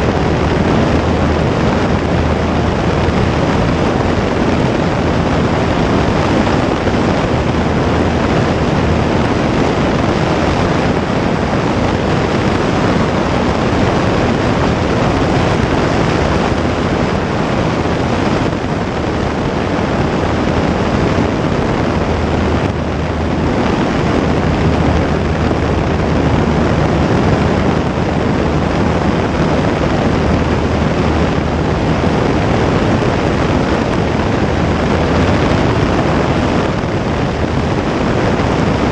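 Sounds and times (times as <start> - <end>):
propeller aircraft engine running: 0.0 - 38.9
wind rush on microphone: 0.0 - 38.9.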